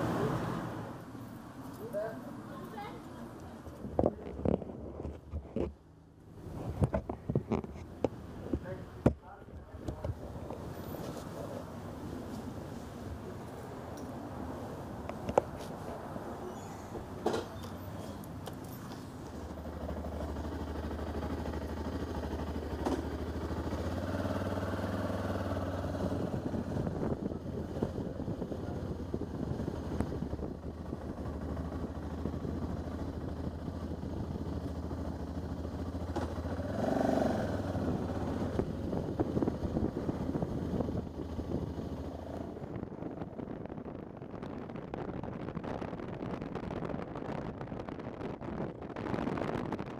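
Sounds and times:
motorcycle engine running: 19.4s - 42.9s.

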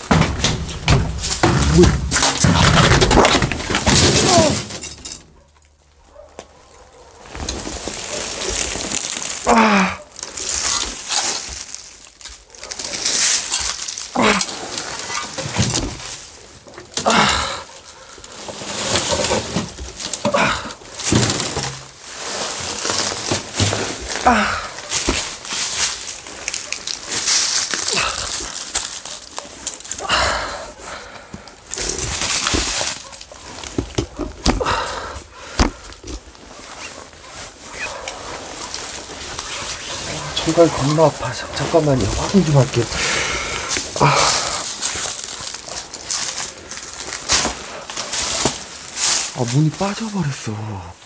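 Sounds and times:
rustling and scraping among debris: 0.0s - 30.0s, 30.7s - 50.8s
man groaning and breathing hard: 9.4s - 10.1s, 14.1s - 14.7s, 17.0s - 17.8s, 20.2s - 20.9s, 24.1s - 24.9s, 27.8s - 28.6s, 30.0s - 31.6s, 34.5s - 35.9s, 42.4s - 44.9s.

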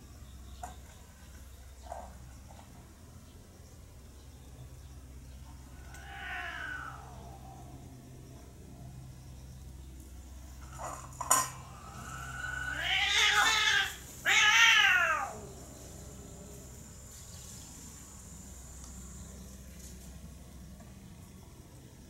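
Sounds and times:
cat meowing: 5.8s - 7.2s, 11.9s - 15.5s.

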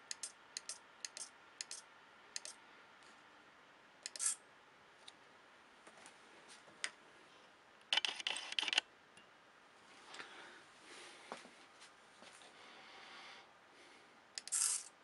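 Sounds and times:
short clicks: 2.4s - 2.6s
servo buzzing: 14.4s - 14.9s.

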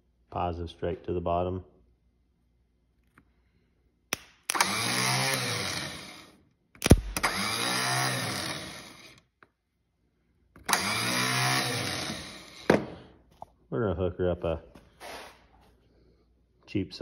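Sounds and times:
electric starter motor spinning: 4.5s - 9.3s, 10.6s - 12.7s
sharp electrical click: 6.8s - 7.4s.

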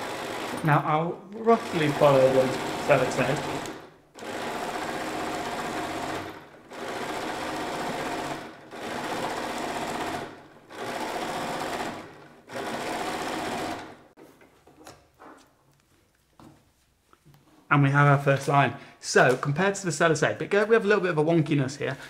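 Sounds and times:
sewing machine stitching: 0.0s - 14.1s.

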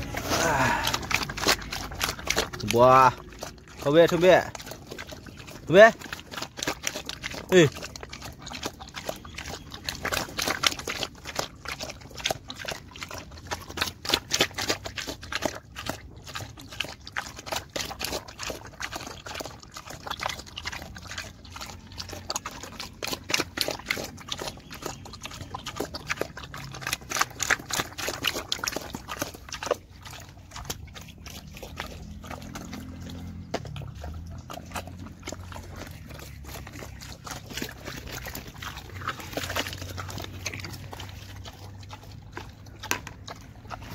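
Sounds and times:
pig eating with wet slurps: 0.0s - 43.9s.

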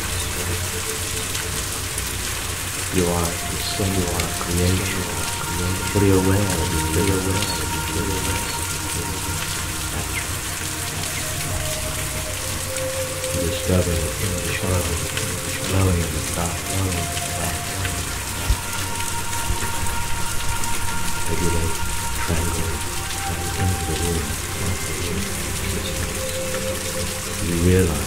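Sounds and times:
rain pattering: 0.0s - 28.0s.

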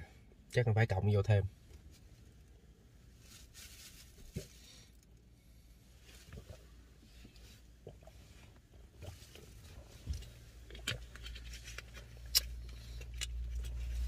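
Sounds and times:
low steady hum: 0.0s - 14.0s
faint rustling: 1.6s - 5.0s.

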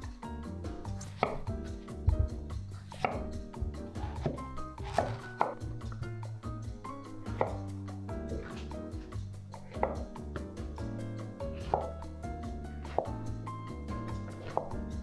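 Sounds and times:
light background music: 0.0s - 15.0s
knife cutting on wooden board: 0.8s - 6.0s, 7.3s - 7.7s, 8.3s - 8.8s, 9.6s - 10.2s, 11.5s - 12.0s, 12.8s - 13.2s, 14.3s - 14.8s.

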